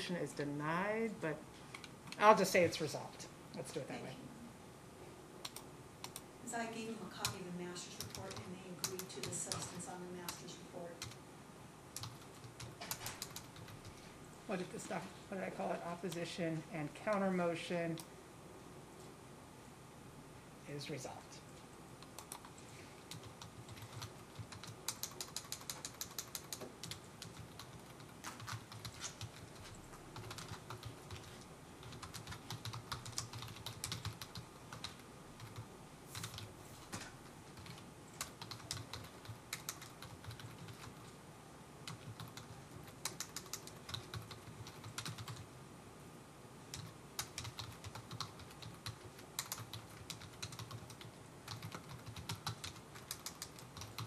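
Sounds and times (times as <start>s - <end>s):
computer keyboard typing: 5.4s - 6.2s, 7.2s - 11.2s, 11.9s - 14.0s, 22.0s - 36.5s, 37.5s - 41.1s, 41.8s - 45.5s, 46.7s - 54.0s.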